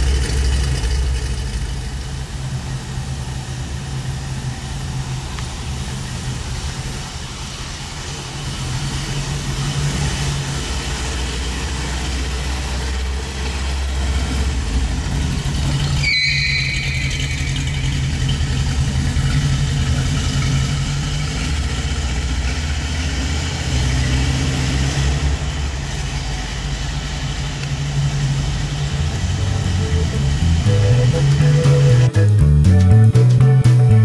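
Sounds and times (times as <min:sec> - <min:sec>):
hot rod engine running: 0:00.0 - 0:34.0
brief high squeal: 0:15.8 - 0:18.4.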